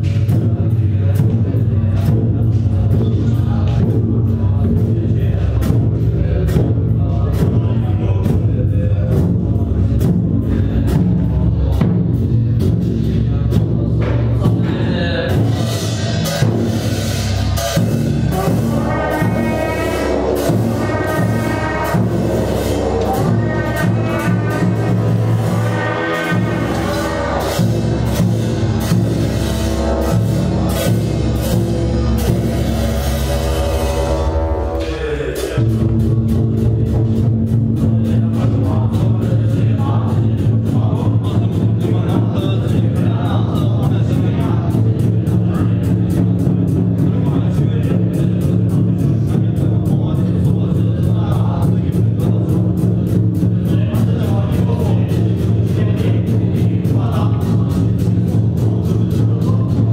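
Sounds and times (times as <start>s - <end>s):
frame drum beating: 0.0s - 59.9s
deep sustained drone: 15.2s - 37.3s.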